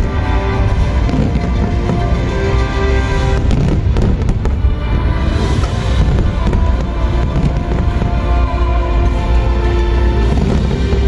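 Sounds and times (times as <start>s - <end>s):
fireworks bangs: 0.0s - 11.0s
low rumble: 0.0s - 11.0s
music: 0.0s - 11.0s.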